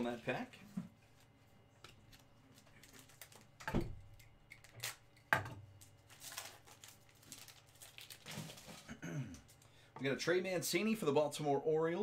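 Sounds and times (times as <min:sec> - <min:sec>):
wrapper crinkling as torn open: 0:02.1 - 0:03.6, 0:04.5 - 0:05.1, 0:05.8 - 0:08.9.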